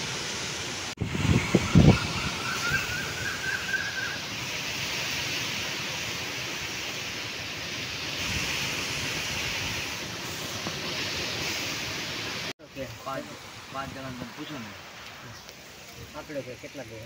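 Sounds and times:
wind rushing through leaves: 0.0 - 17.0
wind buffeting microphone: 1.0 - 5.2.

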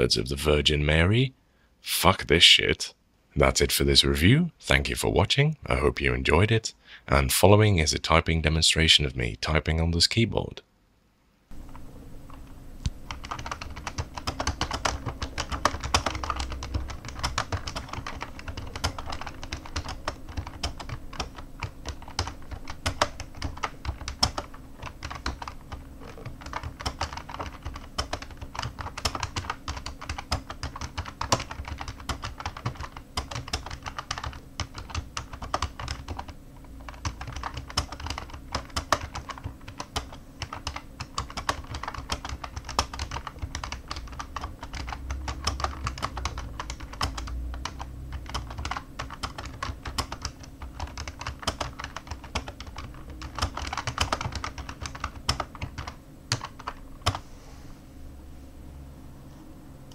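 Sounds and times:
keyboard typing clatter: 13.1 - 57.2.

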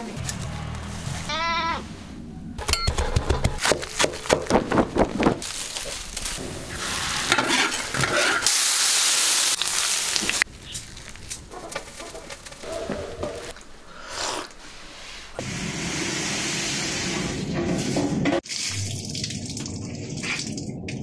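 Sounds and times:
dry grass crackling in fire: 4.2 - 13.8
loud steady sizzle: 5.4 - 11.4.

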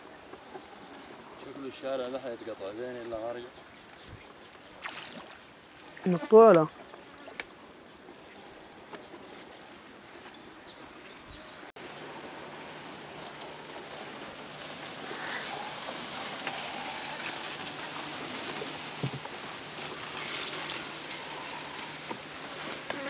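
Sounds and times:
reeds brushing against boat: 11.8 - 23.0.

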